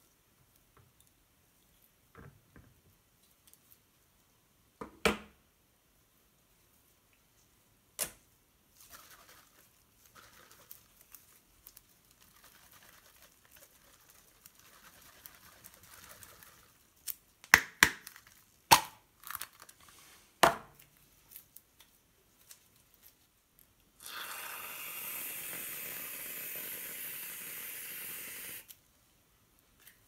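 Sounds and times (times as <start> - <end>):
faint rustling and crinkling: 8.7 - 17.2, 19.4 - 24.0.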